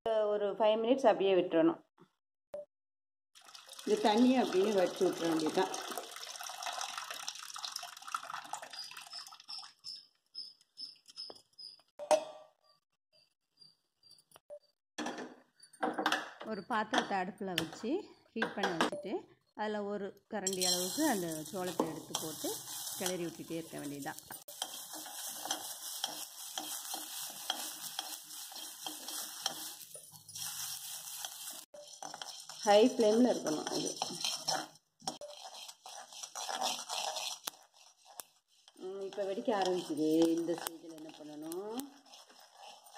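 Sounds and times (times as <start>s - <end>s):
water pouring into a sink: 3.4s - 9.5s
water dripping: 3.4s - 10.1s
metal ladle scraping grains in pan: 20.5s - 42.9s.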